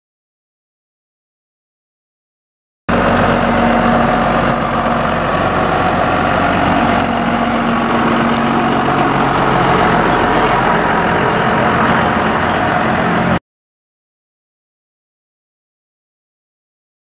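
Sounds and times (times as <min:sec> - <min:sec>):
diesel truck engine passing: 0:02.9 - 0:13.4.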